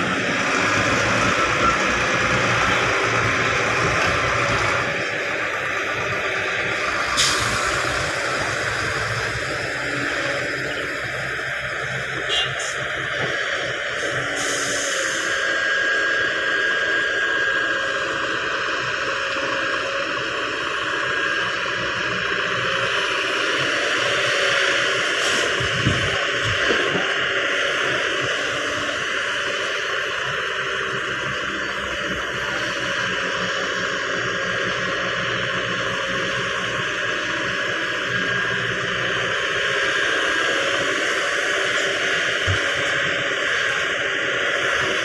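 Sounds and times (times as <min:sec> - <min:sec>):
excavator diesel engine running: 0:00.0 - 0:45.0.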